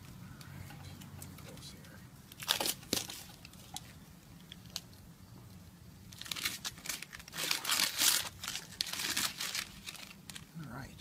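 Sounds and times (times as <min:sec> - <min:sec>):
tape tearing and crinkling: 0:02.3 - 0:05.0, 0:06.1 - 0:10.6.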